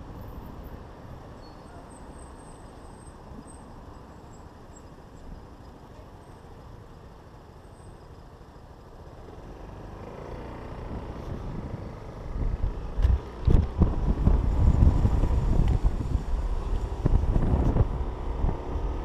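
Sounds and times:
wind buffeting microphone: 10.8 - 19.0.

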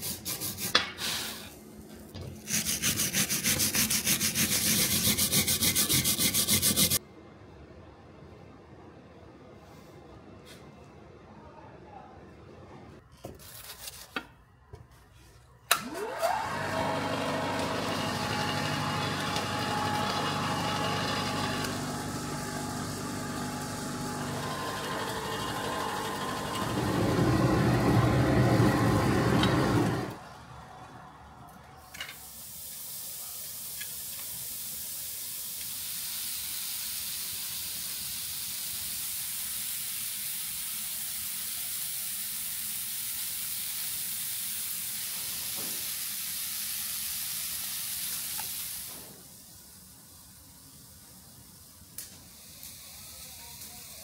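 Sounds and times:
steady high hiss: 32.2 - 54.0.

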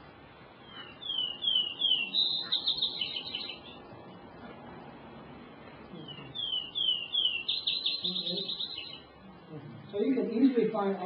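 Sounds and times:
sparrow song: 0.6 - 4.3, 5.9 - 9.2.

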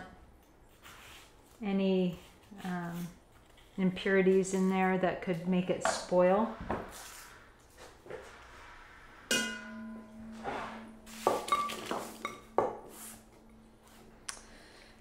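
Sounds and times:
dish ringing: 9.3 - 14.9.

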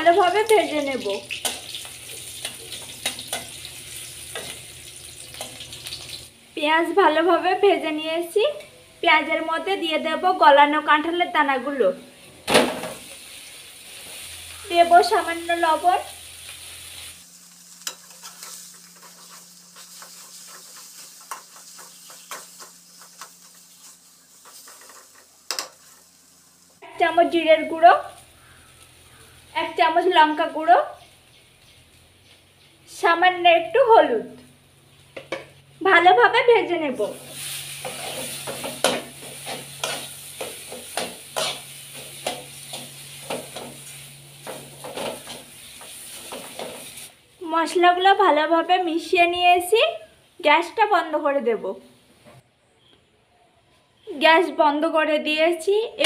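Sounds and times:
light frying sizzle: 0.0 - 52.4
spatula scraping a pan: 17.7 - 26.2, 37.3 - 47.1.

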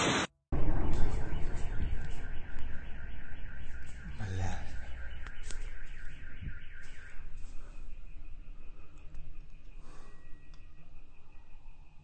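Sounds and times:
car alarm warbling: 0.6 - 12.0.

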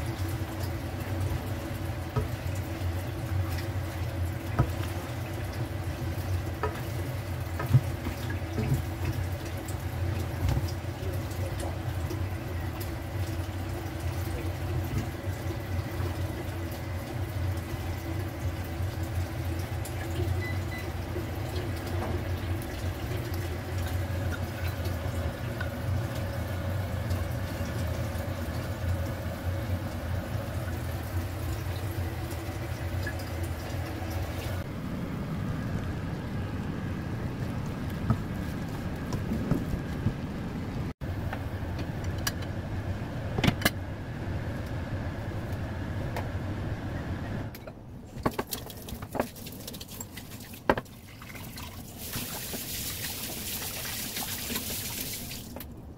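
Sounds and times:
food cooking in a wok: 0.0 - 37.3
kitchen hum: 0.0 - 55.9.

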